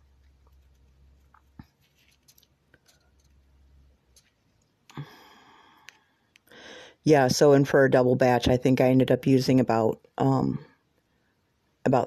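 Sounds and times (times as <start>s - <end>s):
short rustle: 0.5s - 3.4s.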